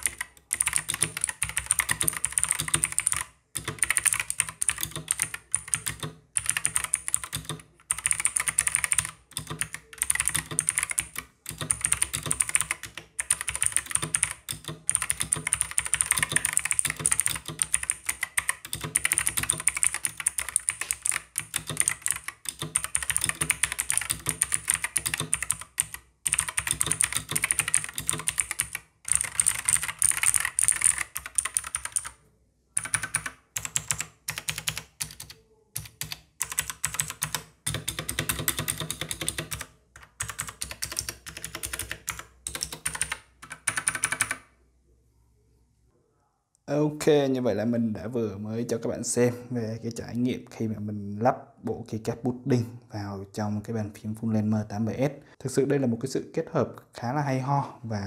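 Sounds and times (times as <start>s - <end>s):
clicky mechanical keyboard typing: 0.0s - 32.2s, 32.8s - 44.5s.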